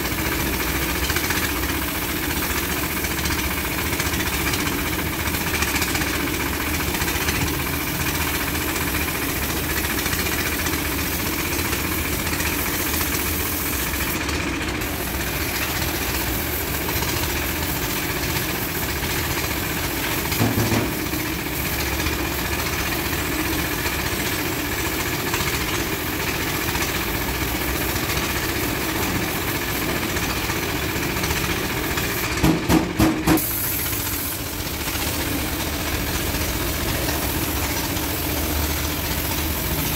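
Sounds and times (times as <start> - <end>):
steady machine drone: 0.0 - 33.1, 33.7 - 39.9
paint spray gun hissing: 0.0 - 39.9.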